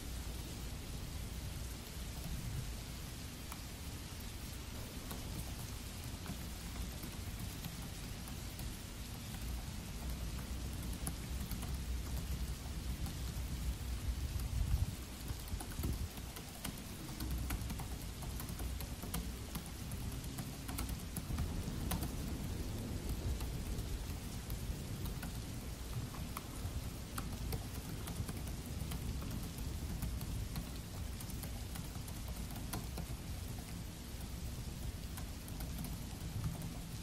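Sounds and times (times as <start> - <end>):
steady rain: 0.0 - 37.0
laptop keys typing: 4.4 - 37.0
low rumble of thunder: 20.9 - 31.6.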